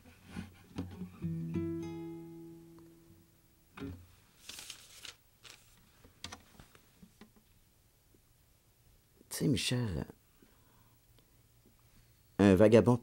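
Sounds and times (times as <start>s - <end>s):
plucked guitar note: 0.8s - 3.2s
faint rustles and clicks: 4.2s - 7.6s.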